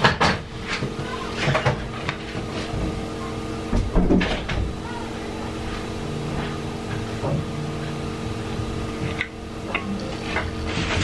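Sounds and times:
steady electrical hum: 0.0s - 11.0s
man chewing food: 6.2s - 10.8s.

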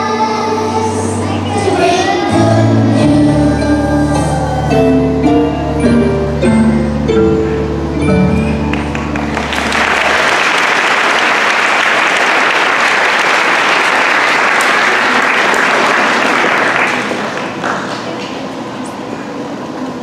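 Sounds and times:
backing music: 0.0s - 12.0s
audience applauding: 8.6s - 18.3s.

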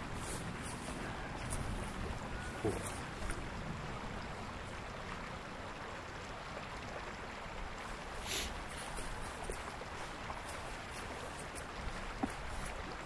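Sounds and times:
low outdoor background noise: 0.0s - 13.0s
brief hiss: 8.2s - 8.6s.

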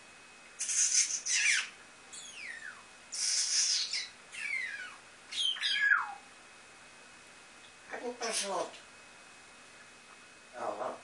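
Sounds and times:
parrot hissing bursts: 0.6s - 1.4s, 3.1s - 4.0s.

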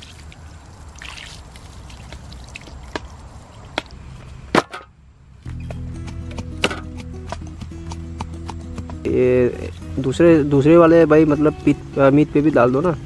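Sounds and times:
water splashing over chicken: 0.0s - 3.0s
sharp knocks: 5.5s - 9.0s.

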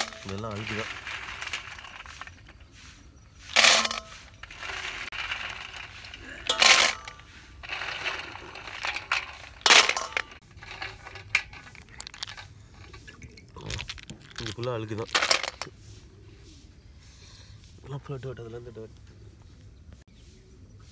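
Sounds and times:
snail shells clattering into metal bowl: 0.0s - 2.7s, 3.5s - 15.7s.

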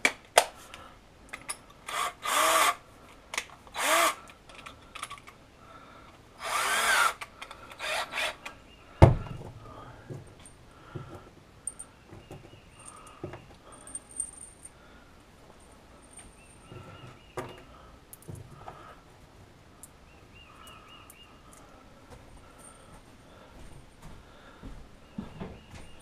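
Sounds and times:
metal hardware clinking: 12.8s - 14.8s.

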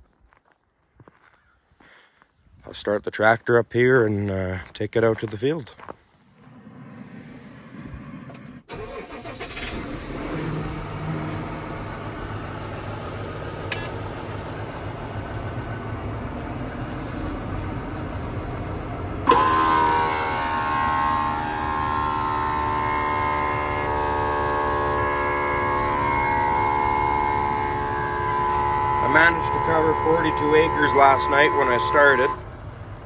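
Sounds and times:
air compressor whining: 6.4s - 33.0s
tractor diesel engine idling: 8.7s - 33.0s.

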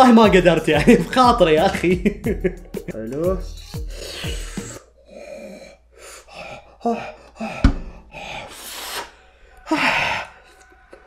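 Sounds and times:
man gasping and huffing: 3.5s - 10.4s.

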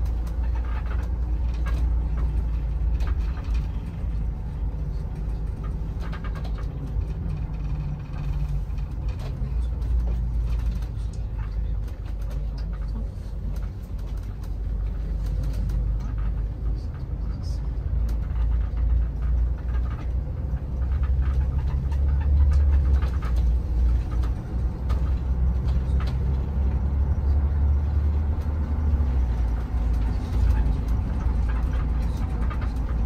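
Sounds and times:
bus engine and tyres rumbling: 0.0s - 33.0s
small clicks and rattles: 0.0s - 33.0s.

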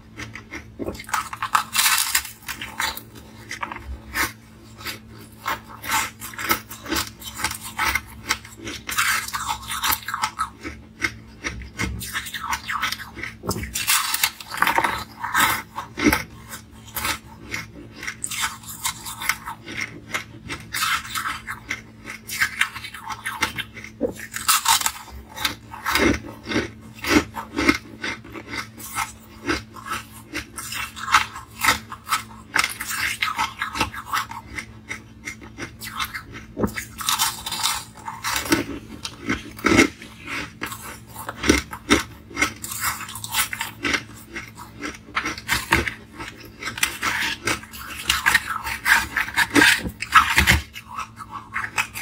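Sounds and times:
grinding and chewing: 0.0s - 52.0s
ice crunching between teeth: 0.1s - 52.0s.

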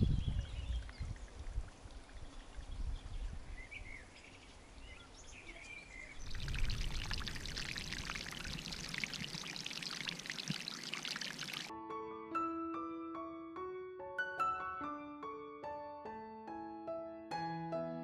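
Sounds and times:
birds chirping faintly: 0.0s - 11.7s
water trickling over rocks: 0.6s - 2.8s, 6.2s - 11.7s.

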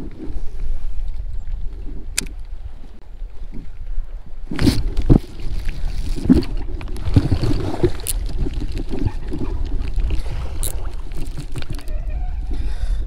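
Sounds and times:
water lapping against kayak hull: 0.0s - 13.0s
wind rumbling on microphone: 0.0s - 13.0s.

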